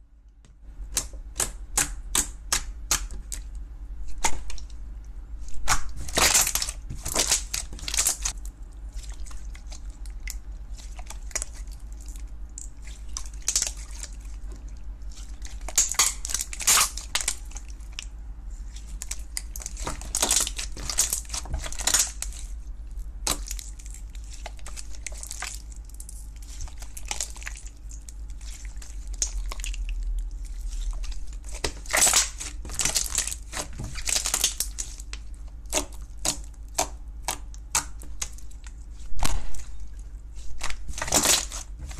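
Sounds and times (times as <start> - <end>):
slime crackling and popping: 5.6 - 8.5, 12.5 - 14.2, 15.3 - 18.0, 18.8 - 22.5, 23.2 - 41.9.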